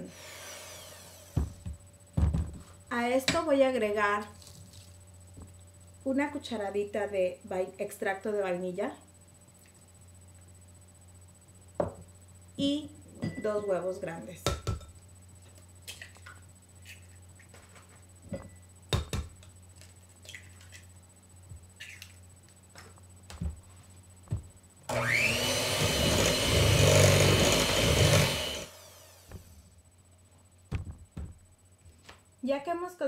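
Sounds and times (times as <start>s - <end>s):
electric hand mixer whining: 0.0s - 1.5s, 24.9s - 29.6s.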